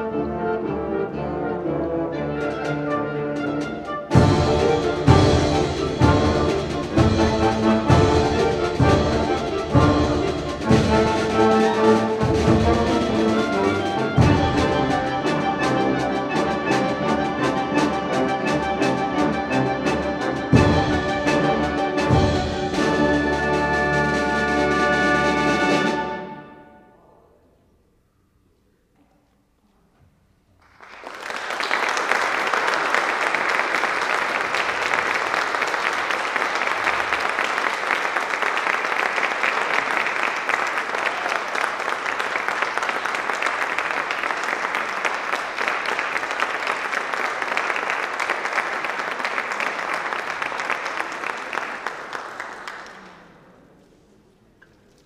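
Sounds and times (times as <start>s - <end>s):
audience applauding: 30.6s - 53.7s.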